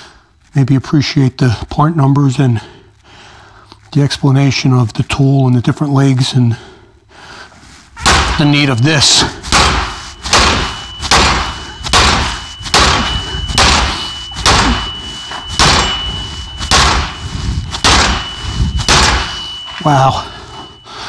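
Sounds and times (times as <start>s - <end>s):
sledgehammer striking metal: 8.0s - 20.8s
thin high metallic ring: 10.0s - 21.0s.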